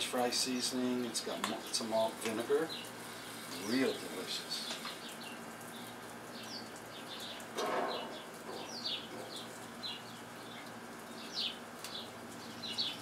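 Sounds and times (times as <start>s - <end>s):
small birds chirping: 0.4s - 13.0s.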